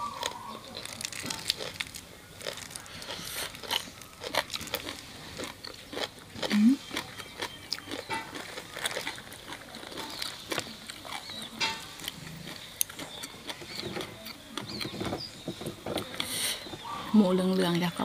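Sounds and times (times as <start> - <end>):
chewing and mouth smacks: 0.0 - 15.0.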